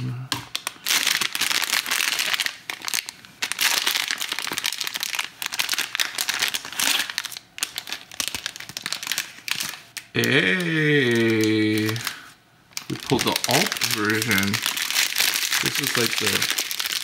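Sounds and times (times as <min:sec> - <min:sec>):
foil wrapper crinkling: 0:00.5 - 0:17.0
man's wordless vocal sound: 0:10.2 - 0:12.1.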